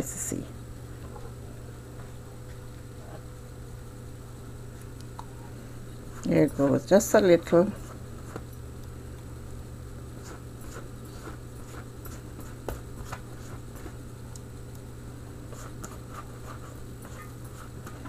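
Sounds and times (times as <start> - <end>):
steady low hum: 0.0 - 18.0
pastry brush dabbing and scratching: 10.2 - 14.0, 15.5 - 17.8.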